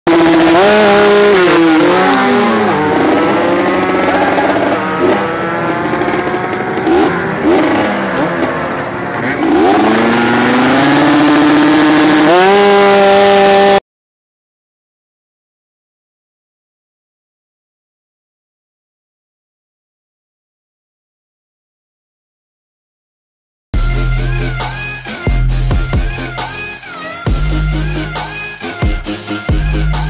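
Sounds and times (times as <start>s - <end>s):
two-stroke engine revving: 0.1s - 13.8s.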